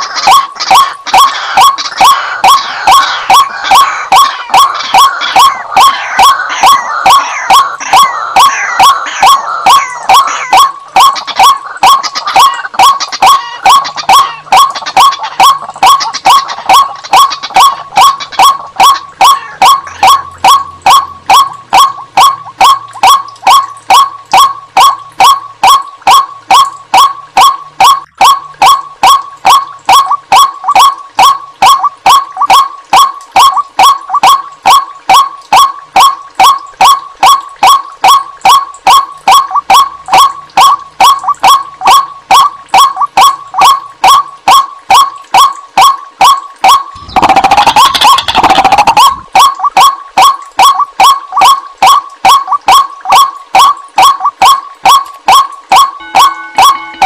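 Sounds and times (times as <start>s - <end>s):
waterhen calling: 0.0s - 57.0s.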